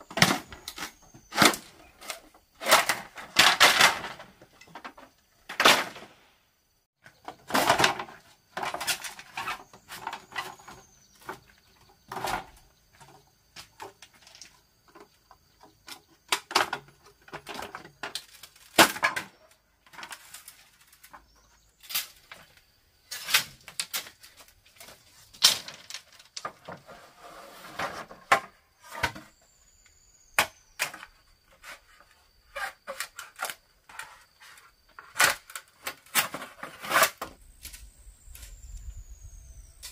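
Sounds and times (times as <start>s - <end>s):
bamboo knocking and clattering: 0.0s - 6.1s, 7.0s - 27.0s, 27.8s - 29.4s.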